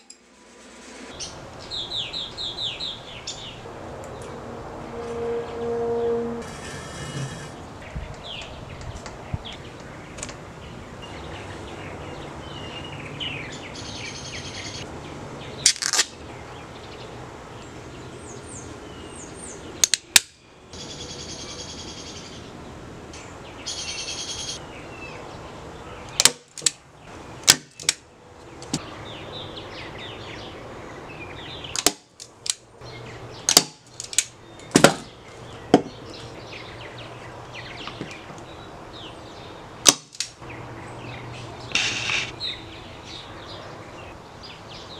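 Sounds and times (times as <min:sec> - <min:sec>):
birds chirping: 0:01.1 - 0:26.3, 0:32.8 - 0:44.9
nail gun shots: 0:26.2 - 0:26.8, 0:27.4 - 0:28.0, 0:31.8 - 0:32.1, 0:33.5 - 0:35.0, 0:39.8 - 0:40.3.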